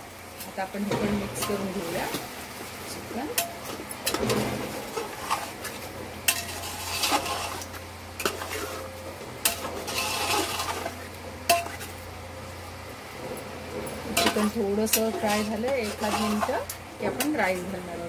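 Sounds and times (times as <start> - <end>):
metal spoon scraping a pot: 3.3 - 11.9, 14.1 - 17.5.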